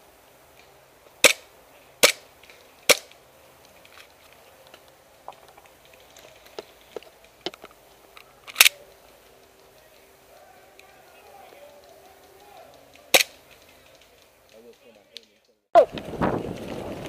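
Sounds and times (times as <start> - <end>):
airsoft guns firing: 1.2 - 3.2, 10.6 - 14.1.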